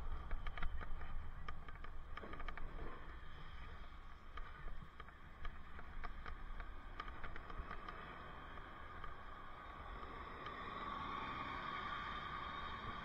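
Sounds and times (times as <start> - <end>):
bicycle clicks and rattles: 0.0 - 3.4, 4.2 - 10.6
wind and road rumble: 0.0 - 13.0.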